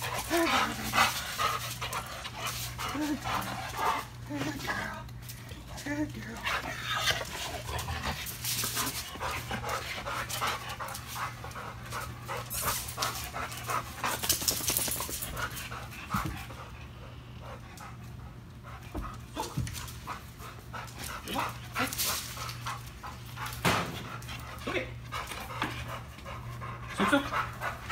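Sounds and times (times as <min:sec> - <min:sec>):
dog panting: 0:00.0 - 0:27.9
toy scuffling on concrete floor: 0:06.6 - 0:15.4.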